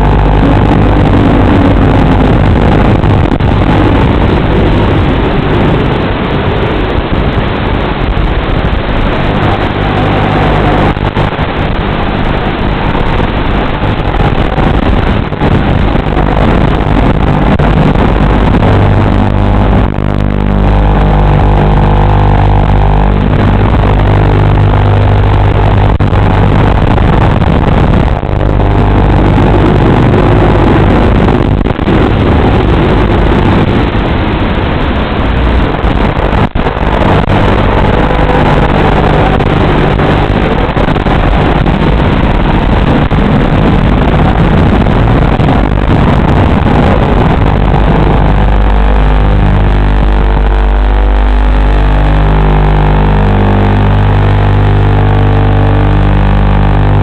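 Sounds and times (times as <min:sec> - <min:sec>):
drone motors whining: 0:08.6 - 0:13.0, 0:16.2 - 0:33.2.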